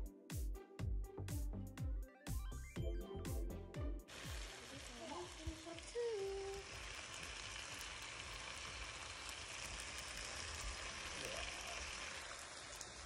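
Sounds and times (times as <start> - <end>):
steaks sizzling in a frying pan: 4.1 - 13.0.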